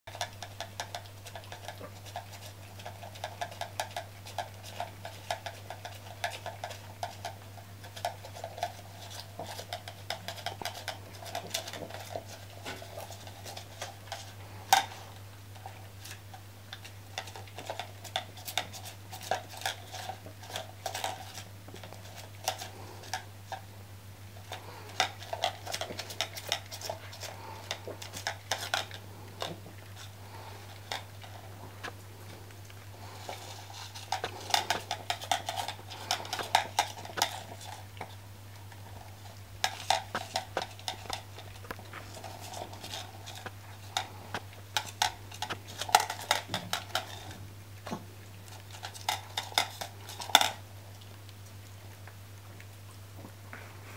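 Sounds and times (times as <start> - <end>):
steady low hum: 0.1 - 53.9
plastic cup scraping on tiles: 33.0 - 38.2, 39.0 - 47.4.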